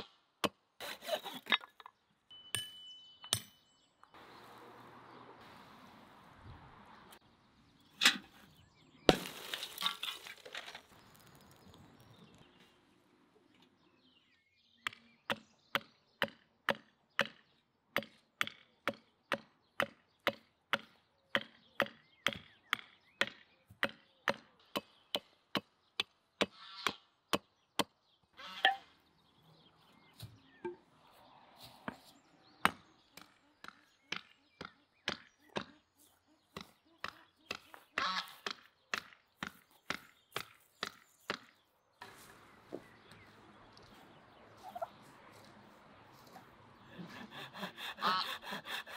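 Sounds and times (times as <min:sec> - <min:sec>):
hatchet chopping wood: 0:00.0 - 0:00.6, 0:09.1 - 0:09.7, 0:14.8 - 0:28.0, 0:32.6 - 0:35.8, 0:38.4 - 0:41.6.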